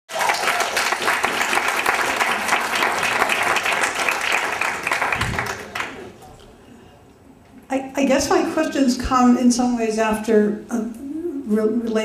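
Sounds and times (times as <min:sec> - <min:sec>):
audience applauding: 0:00.1 - 0:06.2.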